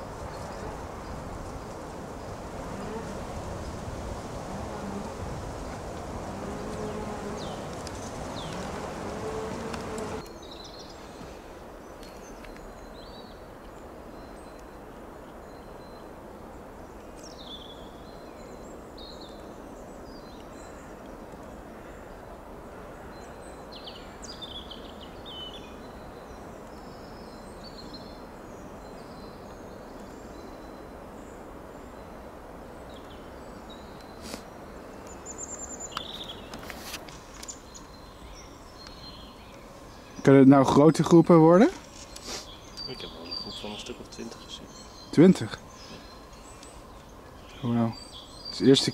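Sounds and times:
steady outdoor hiss: 0.0s - 48.9s
insect buzzing: 0.2s - 11.4s, 34.2s - 48.5s
small birds chirping: 5.6s - 48.9s.

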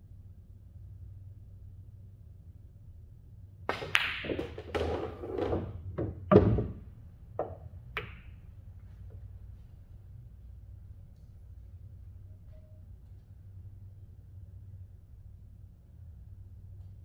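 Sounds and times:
ball dropping into pocket: 3.7s - 6.8s
balls rolling and hitting cushions: 3.7s - 8.4s
pool balls knocking together: 3.7s - 8.4s.

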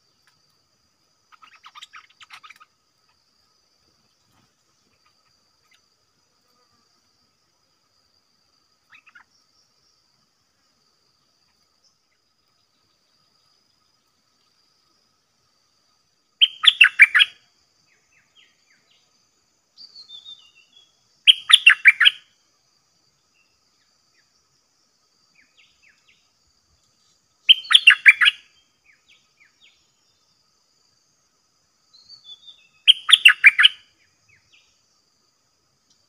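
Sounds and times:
faint short bird calls: 1.3s - 2.7s, 8.9s - 9.3s
bulbul singing: 16.4s - 17.4s, 27.5s - 28.4s, 32.0s - 33.8s.

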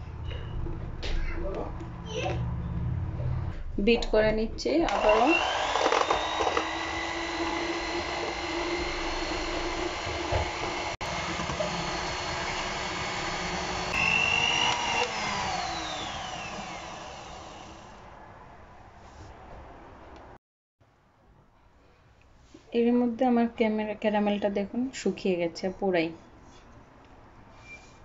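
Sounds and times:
electric hand mixer whirring: 4.9s - 18.1s.

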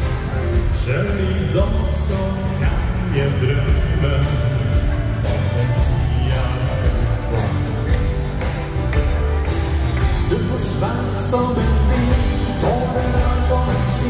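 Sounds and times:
drums and bass beat: 0.0s - 14.0s
live dance band music: 0.0s - 14.0s
person singing: 0.0s - 14.0s.

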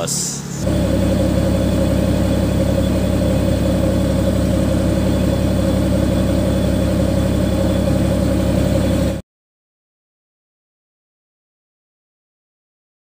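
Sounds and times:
diesel engine idling: 0.0s - 9.2s.

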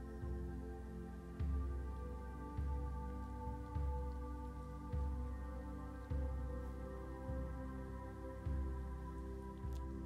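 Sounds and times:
ambient music sustained tones: 0.0s - 10.0s.

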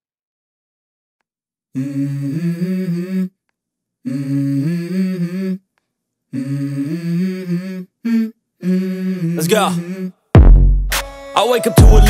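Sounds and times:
hummed vocal melody: 1.7s - 10.3s, 11.6s - 12.0s.

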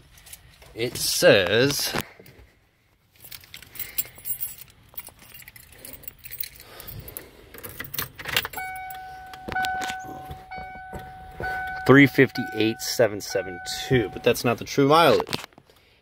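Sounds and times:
keys jangling: 3.2s - 14.3s
dashboard warning chime: 8.5s - 14.6s.

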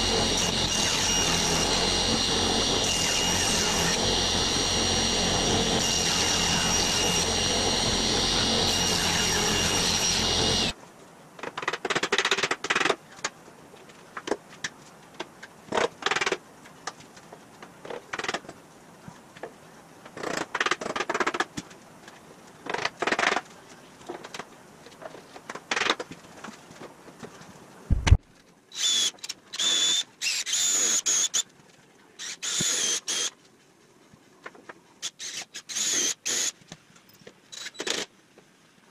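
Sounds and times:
cordless drill driving screws: 0.0s - 10.7s, 28.8s - 31.4s, 32.2s - 33.3s, 35.0s - 36.6s
table saw cutting wood: 0.0s - 10.8s.

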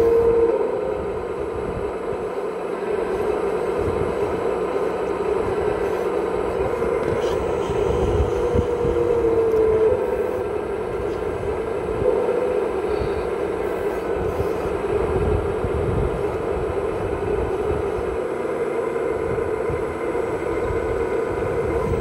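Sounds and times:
hydraulic pump whine: 0.0s - 22.0s.

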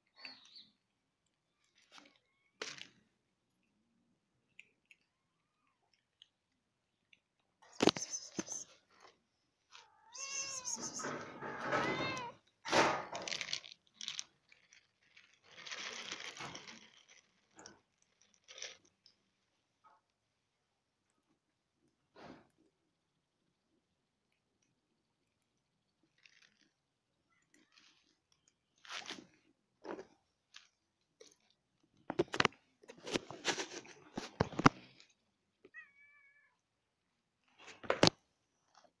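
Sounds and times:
kitten meowing: 9.8s - 12.4s
cats crunching dry food: 12.5s - 19.6s, 24.2s - 35.3s.

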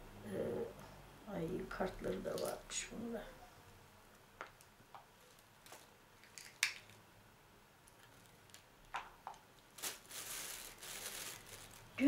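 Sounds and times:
plastic bag rustling: 5.2s - 7.0s, 9.6s - 12.0s.

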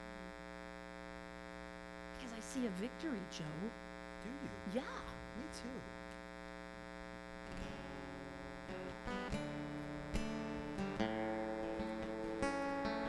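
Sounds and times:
acoustic guitar strumming: 7.4s - 13.0s.

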